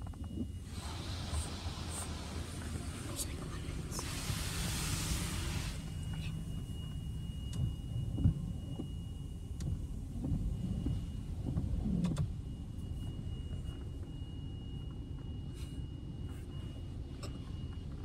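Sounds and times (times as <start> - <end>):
car cabin low rumble: 0.0 - 18.0
faint high whine: 0.0 - 18.0
car wash dryer blowers rushing: 0.6 - 8.9.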